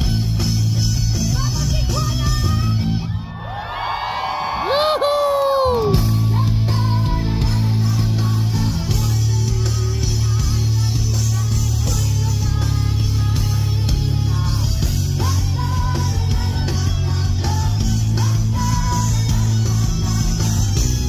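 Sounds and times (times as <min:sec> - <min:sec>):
bass: 0:00.0 - 0:21.0
drums: 0:00.0 - 0:21.0
electric guitar: 0:05.5 - 0:21.0.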